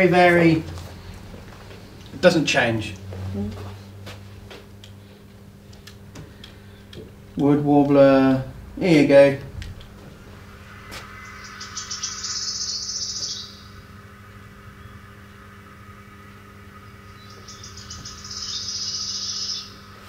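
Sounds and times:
bird song through small speaker: 11.3 - 13.8, 16.8 - 20.0.

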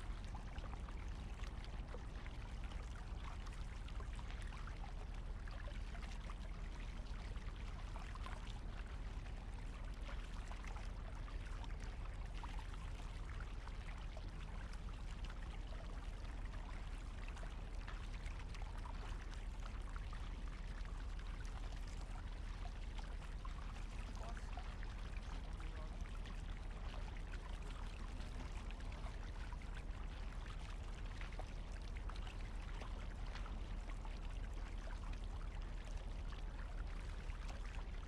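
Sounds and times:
water splashing and trickling: 0.0 - 38.0
kayak paddle dipping in water: 14.1 - 38.0.

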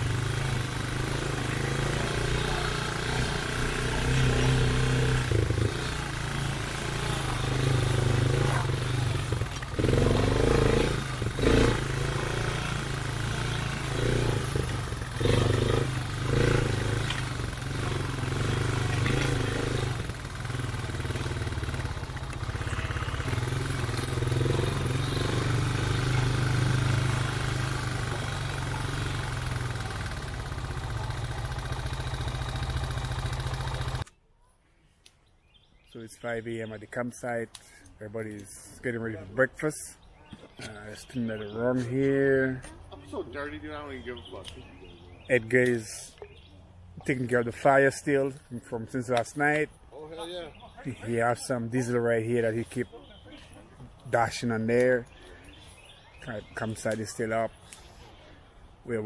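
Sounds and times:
motorbike engine running: 0.0 - 34.1.

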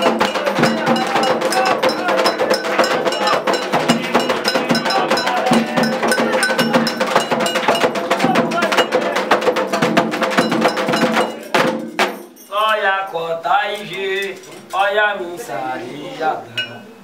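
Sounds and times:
hand drums: 0.0 - 12.4.

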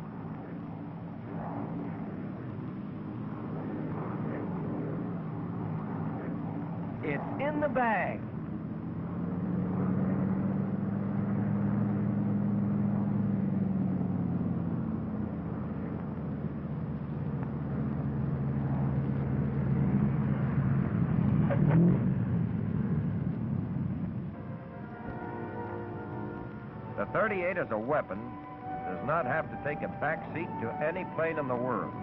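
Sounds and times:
piston engines droning: 0.0 - 32.0.

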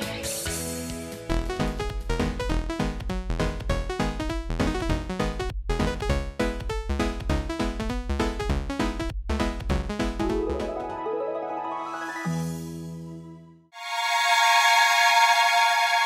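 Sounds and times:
electronic synthesizer music: 10.2 - 16.0.

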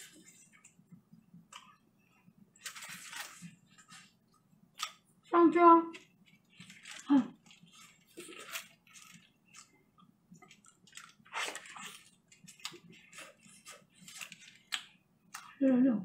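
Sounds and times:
wet chewing and tearing: 2.6 - 5.1, 6.0 - 15.6.

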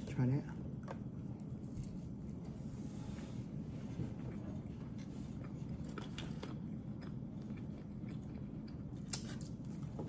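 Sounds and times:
steady low hum: 0.0 - 10.0
person chewing food: 3.4 - 10.0.

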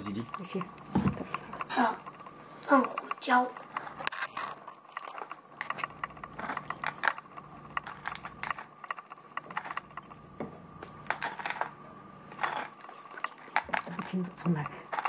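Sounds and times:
pepper mill grinding: 3.0 - 10.2, 10.8 - 15.0.

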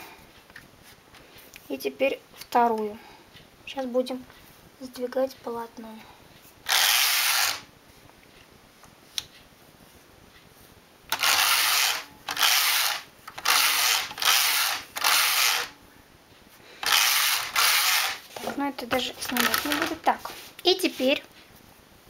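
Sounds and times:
knitting machine carriage passes: 11.1 - 15.7, 16.8 - 18.2.

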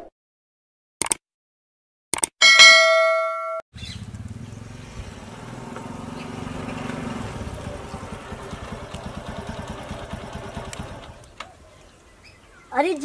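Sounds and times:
motorcycle engine running: 3.8 - 11.6.

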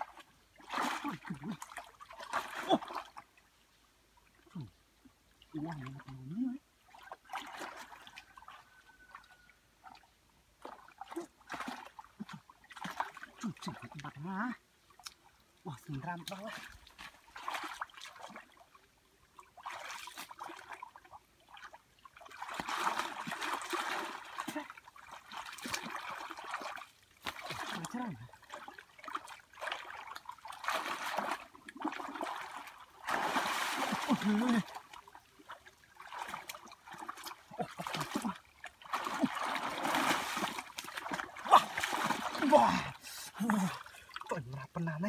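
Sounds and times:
hands splashing in muddy water: 0.0 - 3.2, 6.9 - 8.6, 10.6 - 14.0, 15.8 - 18.6, 19.5 - 44.3.

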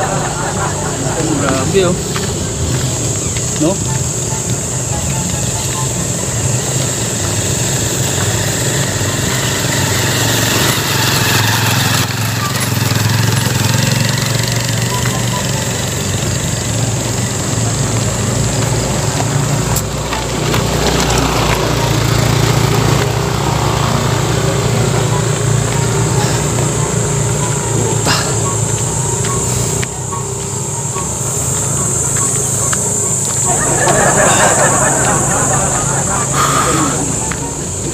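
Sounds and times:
motorcycle engine running: 0.0 - 37.9
high hiss: 20.7 - 37.9.

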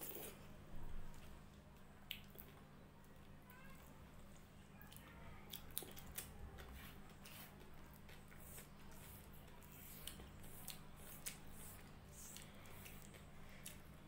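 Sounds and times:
fingers squishing food: 1.7 - 14.0
chewing: 4.2 - 14.0.

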